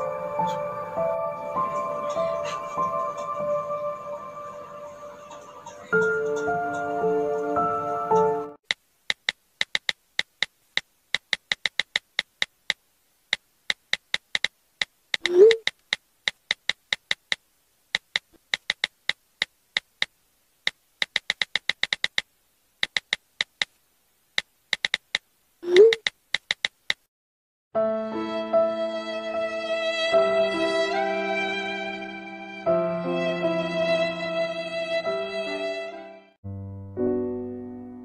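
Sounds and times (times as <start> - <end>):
phone keyboard clicking: 8.7 - 17.4, 18.0 - 20.1, 20.7 - 23.8, 24.4 - 27.0.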